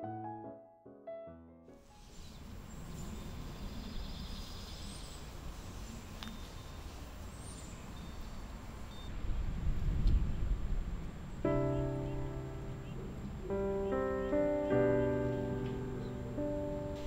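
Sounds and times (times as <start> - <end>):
low wind rumble: 1.8 - 17.0
faint high bird chirps: 1.9 - 9.2.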